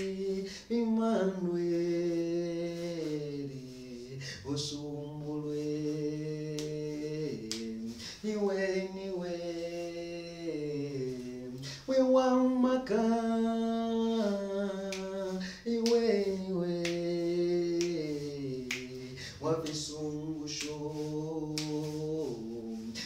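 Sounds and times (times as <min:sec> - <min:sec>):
man singing unaccompanied: 0:00.0 - 0:23.0
finger snaps: 0:06.5 - 0:08.0, 0:14.8 - 0:22.0.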